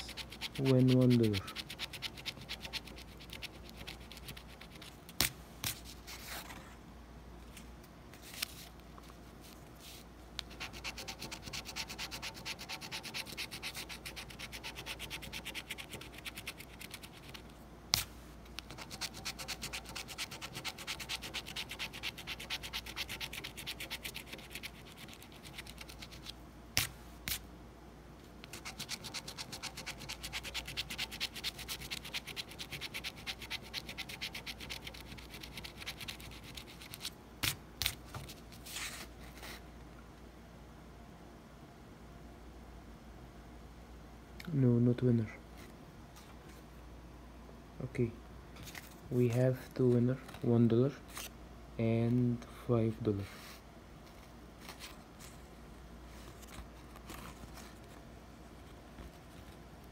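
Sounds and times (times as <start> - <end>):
coin scratching lottery ticket: 0.0 - 4.8, 10.5 - 17.4, 18.7 - 26.3, 28.5 - 37.0.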